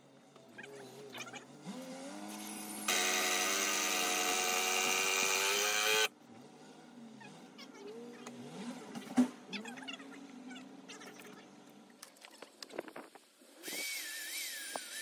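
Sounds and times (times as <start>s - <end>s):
power drill running under load: 2.3s - 6.1s, 13.6s - 15.0s.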